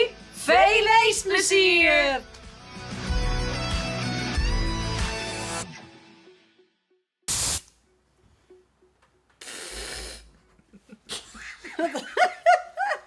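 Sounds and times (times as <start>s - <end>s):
hissing bursts: 7.3s - 7.7s, 9.4s - 10.3s
woman laughing: 10.5s - 13.0s.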